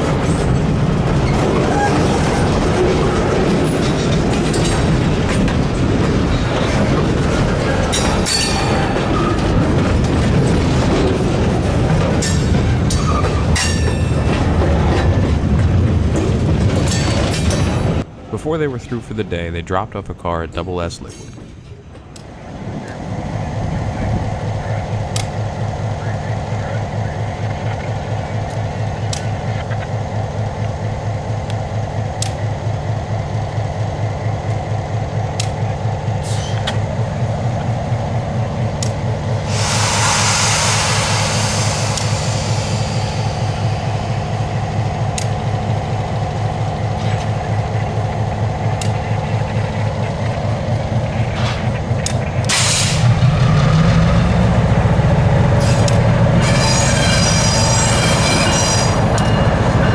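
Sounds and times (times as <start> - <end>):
diesel locomotive engine: 0.0 - 59.9
sharp clicks: 32.2 - 32.4, 38.8 - 39.0, 45.0 - 45.4, 48.6 - 49.7, 52.0 - 52.6
brake air hiss: 36.2 - 36.7, 39.4 - 44.0, 52.5 - 53.1.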